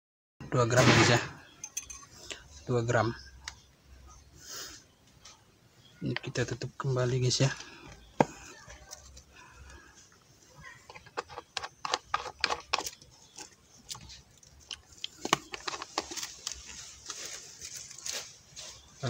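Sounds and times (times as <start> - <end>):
plastic packaging crinkling: 11.4 - 19.0.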